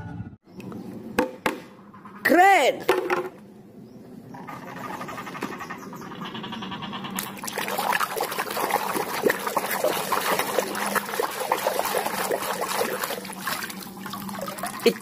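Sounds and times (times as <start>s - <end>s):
water splashing in a plastic tub: 7.2s - 15.0s.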